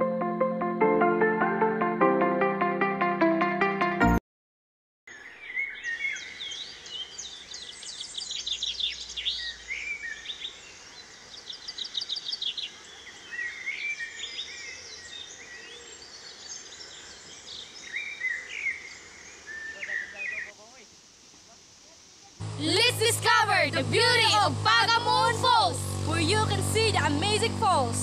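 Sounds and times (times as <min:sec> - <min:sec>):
forest birds chirping: 0:05.1 - 0:28.0.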